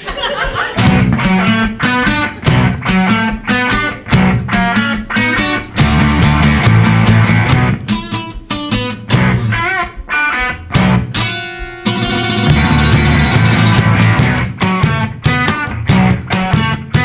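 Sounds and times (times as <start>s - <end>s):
electric and acoustic guitars: 0.0s - 17.0s.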